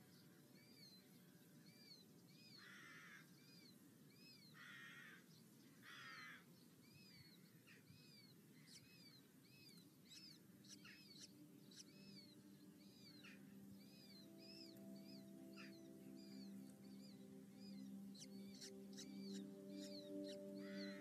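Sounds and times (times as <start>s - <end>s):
harsh rasping bird calls: 10.1s - 21.0s
falcon calls: 13.0s - 21.0s.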